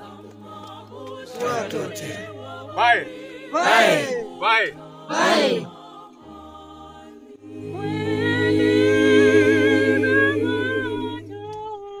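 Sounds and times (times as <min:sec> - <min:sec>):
group singing unaccompanied: 0:00.0 - 0:11.7.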